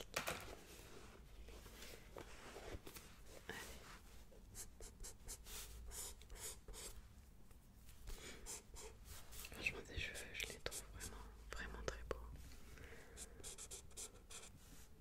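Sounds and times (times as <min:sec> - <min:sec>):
pencil sketching on paper: 0:13.2 - 0:14.5.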